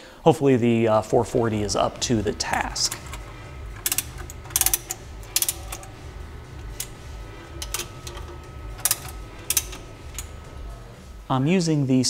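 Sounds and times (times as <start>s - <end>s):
low steady hum: 0.0s - 12.0s
ratchet wrench clicking: 2.0s - 11.1s.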